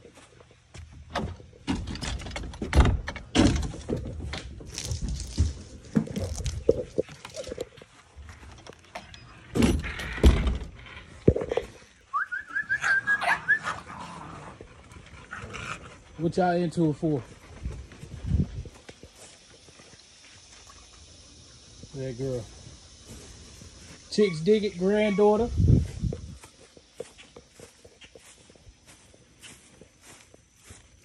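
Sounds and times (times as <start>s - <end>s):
footsteps on grass: 0.0s - 0.9s, 4.2s - 8.6s, 16.9s - 20.5s, 23.0s - 31.0s.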